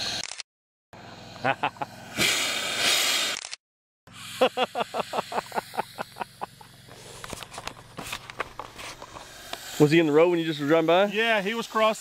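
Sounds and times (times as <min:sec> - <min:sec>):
snake hissing loudly: 0:01.0 - 0:03.4, 0:04.1 - 0:07.3, 0:09.1 - 0:12.0.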